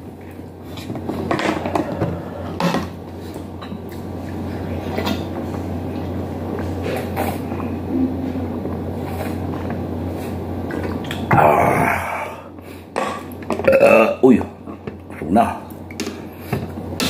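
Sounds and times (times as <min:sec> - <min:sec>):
steady low hum: 0:00.0 - 0:17.0
swallowing: 0:10.7 - 0:14.2.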